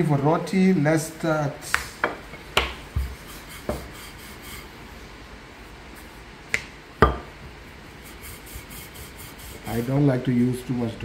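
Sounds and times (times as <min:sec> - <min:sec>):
faint rubbing of dough: 0:02.8 - 0:06.4, 0:07.6 - 0:10.9
rolling pin knocking on countertop: 0:07.0 - 0:07.3.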